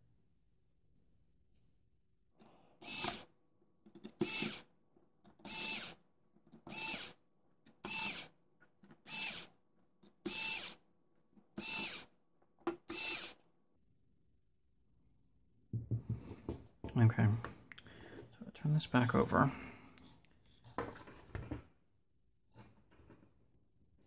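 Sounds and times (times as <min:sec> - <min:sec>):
cordless screwdriver whirring: 0:02.8 - 0:03.3, 0:04.1 - 0:04.7, 0:05.4 - 0:06.0, 0:06.7 - 0:07.2, 0:07.8 - 0:08.3, 0:09.0 - 0:09.5, 0:10.3 - 0:10.8, 0:11.6 - 0:12.1, 0:12.9 - 0:13.4.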